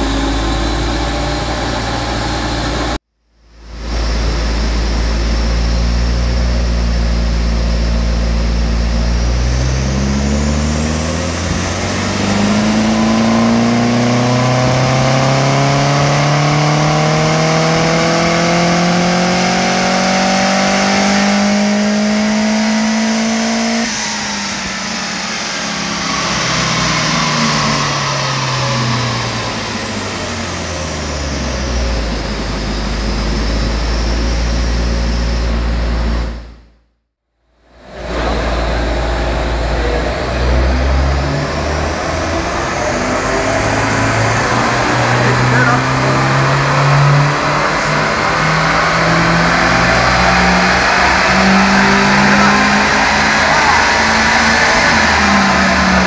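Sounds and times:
car engine revving on dyno: 0.0s - 36.7s, 37.6s - 56.0s.

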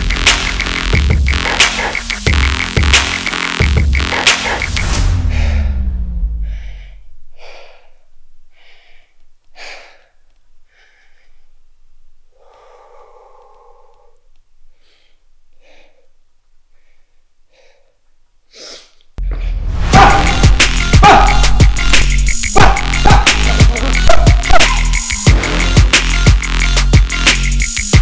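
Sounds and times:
music: 0.0s - 7.0s, 19.2s - 28.0s
person gasping for breath: 6.4s - 11.5s.

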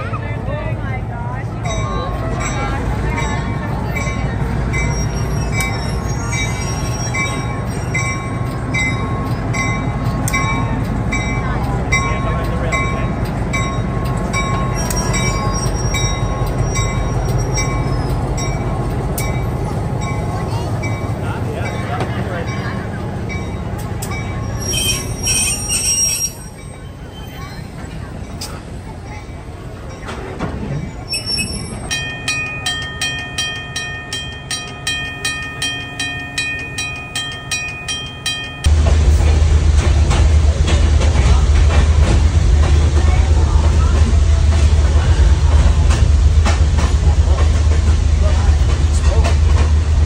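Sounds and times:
diesel locomotive engine rumble: 0.0s - 50.0s
crossing bell ringing: 1.4s - 38.8s
bell ringing: 31.1s - 38.7s.

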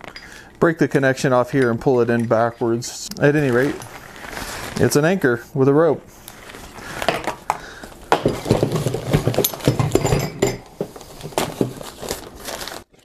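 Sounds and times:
packaging rustling: 3.2s - 5.2s, 6.2s - 10.0s, 10.7s - 13.0s.

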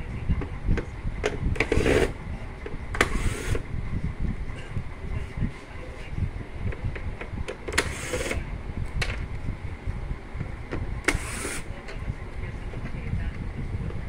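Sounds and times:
electric screwdriver whirring: 1.6s - 2.2s, 3.0s - 3.6s, 7.7s - 8.4s, 11.1s - 11.7s.

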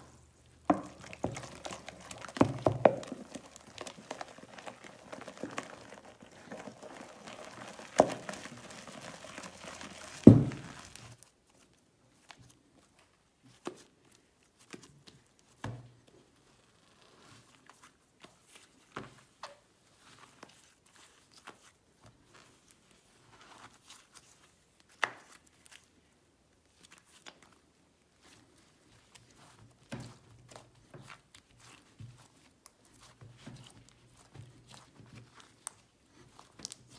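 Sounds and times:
plastic sheet crinkling: 0.0s - 11.3s
slime squishing: 0.0s - 11.3s, 28.2s - 36.9s.

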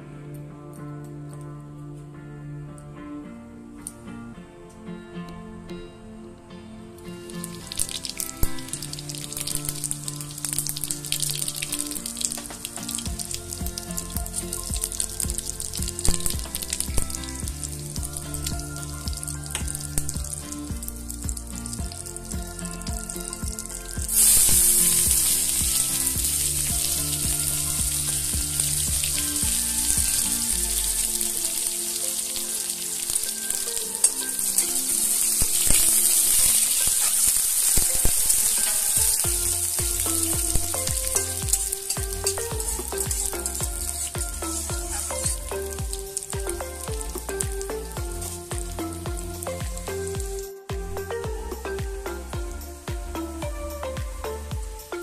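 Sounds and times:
background music: 0.0s - 55.0s
quiet frying sound: 7.2s - 52.2s
onions sizzling in hot oil: 21.1s - 47.1s.

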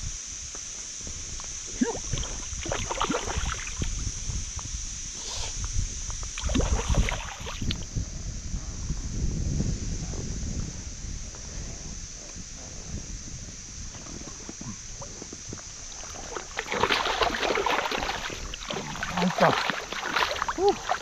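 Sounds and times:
low wind rumble: 0.0s - 21.0s
water splashing at landing net: 1.8s - 4.0s, 6.4s - 7.7s, 15.8s - 21.0s.

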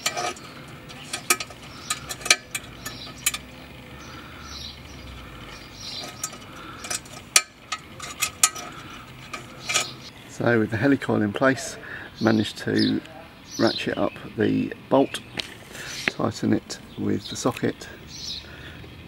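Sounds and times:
metallic clicks and light scraping: 0.0s - 4.2s, 5.0s - 10.1s.

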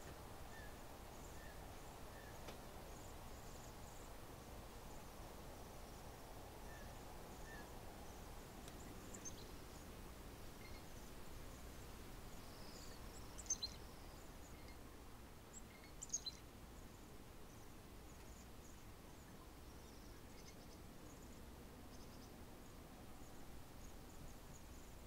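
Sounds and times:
low background noise: 0.0s - 25.0s
birds high thin calls: 12.4s - 14.8s, 15.6s - 16.5s.

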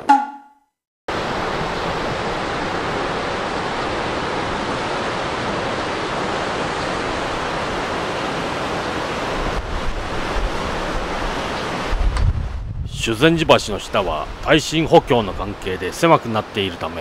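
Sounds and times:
wind noise on microphone: 8.9s - 14.5s.

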